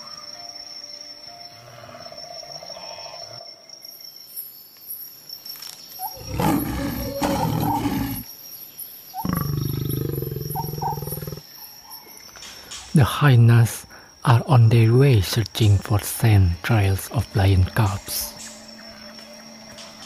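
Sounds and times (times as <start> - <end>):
lions growling deeply: 6.1 - 8.3, 9.2 - 11.4.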